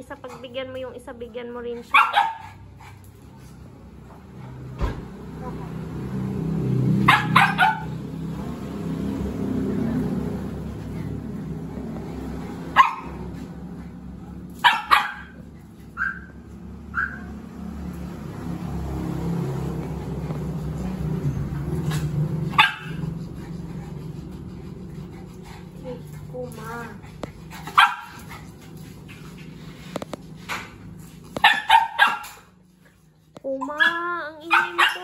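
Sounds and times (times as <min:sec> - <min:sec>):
dogs barking: 0:01.8 - 0:03.0, 0:06.8 - 0:08.3, 0:12.2 - 0:17.6, 0:20.0 - 0:24.2, 0:27.0 - 0:28.6, 0:31.3 - 0:32.7, 0:33.6 - 0:35.0.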